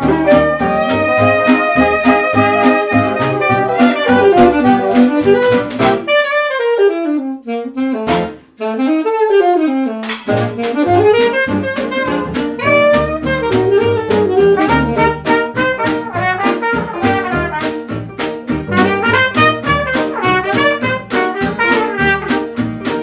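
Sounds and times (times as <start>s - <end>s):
instrumental music with drum beat: 0.0s - 7.0s, 7.8s - 8.6s, 9.8s - 23.0s.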